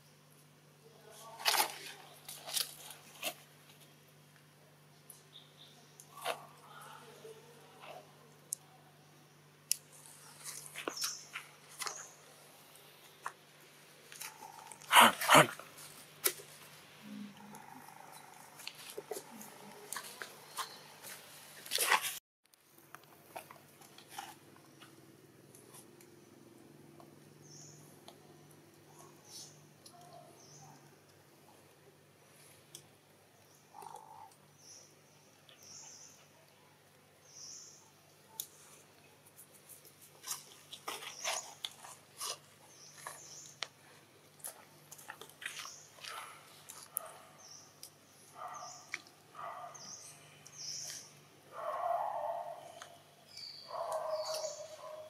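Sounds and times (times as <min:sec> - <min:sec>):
bird chirps: 0:52.0 - 0:55.0.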